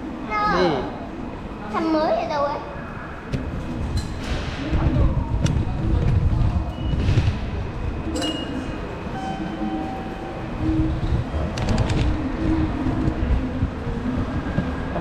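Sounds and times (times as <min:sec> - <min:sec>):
train running rumble: 0:03.2 - 0:15.0
faint steady tones: 0:07.9 - 0:11.5.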